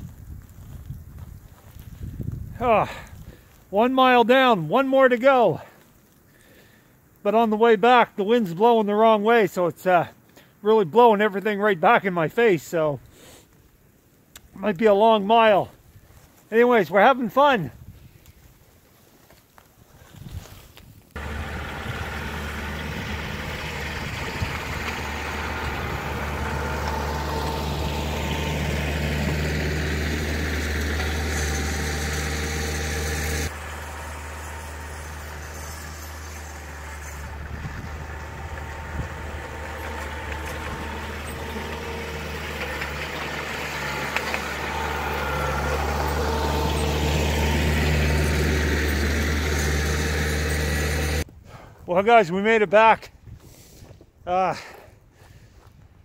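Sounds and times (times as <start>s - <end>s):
tractor diesel engine running: 21.2s - 51.3s.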